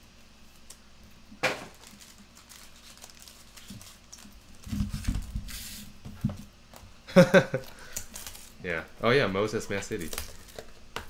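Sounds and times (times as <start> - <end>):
card packs thumping on mat: 1.4 - 1.9.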